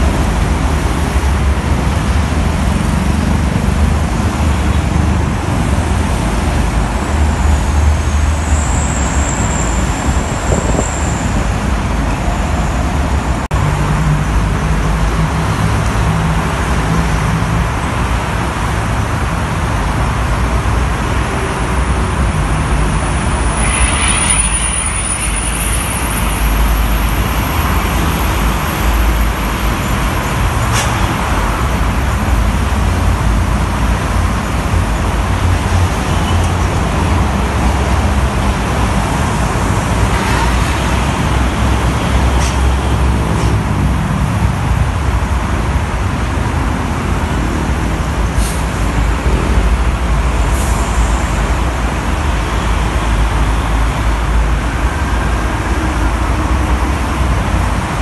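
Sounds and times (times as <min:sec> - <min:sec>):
heavy traffic roar: 0:00.0 - 0:58.0
tyres hissing on wet road: 0:17.6 - 0:58.0
thin high squeal: 0:23.6 - 0:26.2.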